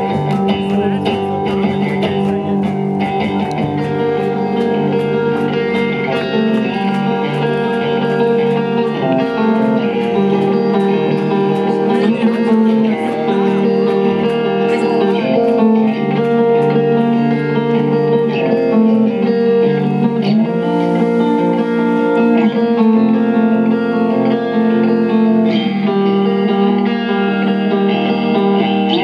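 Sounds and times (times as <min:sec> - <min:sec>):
bass guitar: 0:00.0 - 0:29.0
electric guitar chords: 0:00.0 - 0:29.0.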